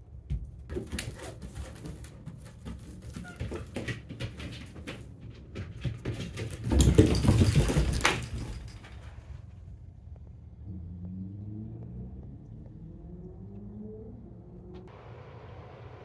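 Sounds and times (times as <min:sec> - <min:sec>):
rustling and thumping: 0:00.2 - 0:10.3
puppy paws clicking on floor: 0:00.3 - 0:09.6.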